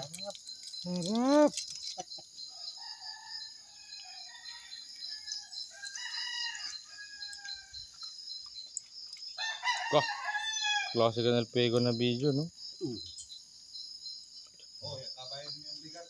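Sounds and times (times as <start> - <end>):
night insects chirring: 0.0 - 16.0
roosters crowing: 2.5 - 8.0, 9.4 - 11.1.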